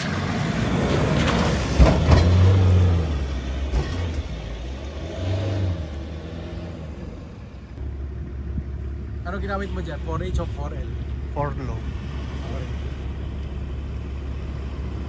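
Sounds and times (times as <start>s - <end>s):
truck engine revving under load: 0.0s - 15.0s.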